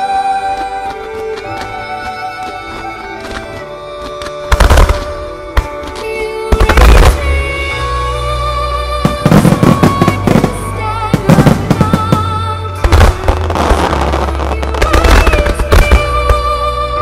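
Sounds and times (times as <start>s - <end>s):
fireworks bursting: 4.5s - 7.4s, 9.0s - 16.6s
loud music: 9.0s - 17.0s.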